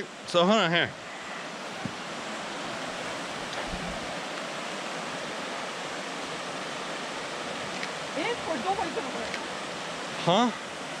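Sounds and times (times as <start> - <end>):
water rushing: 0.0 - 11.0.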